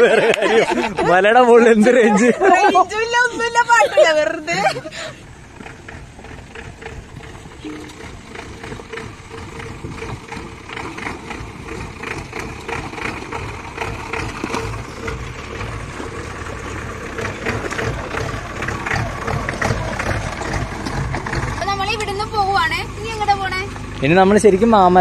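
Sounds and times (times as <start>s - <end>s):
engine running: 0.0s - 25.0s
knocks and rattles: 5.5s - 21.7s.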